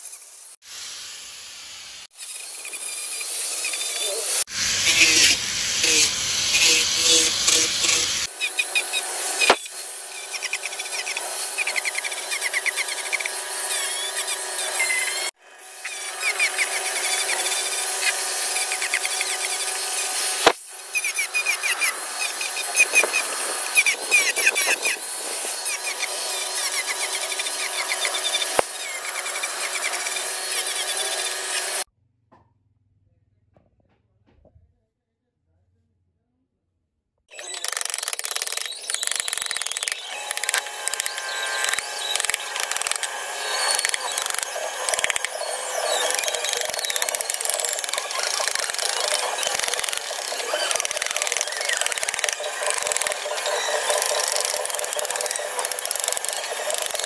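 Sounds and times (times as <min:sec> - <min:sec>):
angle grinder sanding wood: 0:02.2 - 0:31.9, 0:37.3 - 0:57.0.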